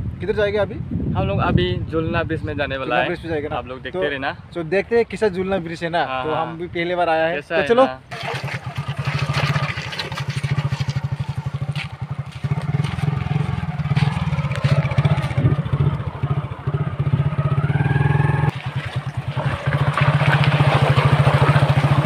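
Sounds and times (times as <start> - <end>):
motorcycle engine puttering: 8.1 - 22.0.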